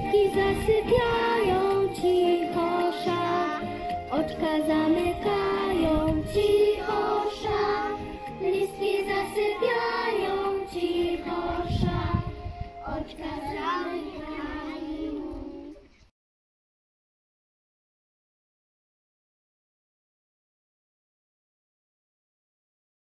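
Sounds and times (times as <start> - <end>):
instrumental backing track: 0.0 - 14.1
children singing: 0.0 - 16.0.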